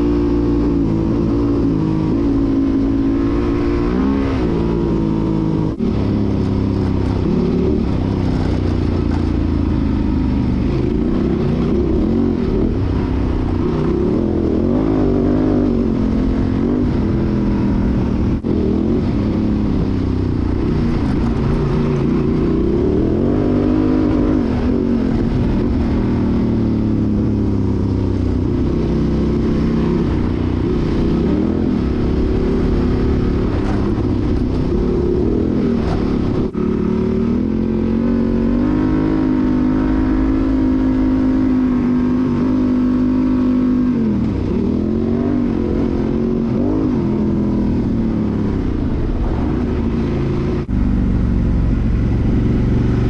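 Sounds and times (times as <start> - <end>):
motorcycle engine revving: 0.0 - 53.0.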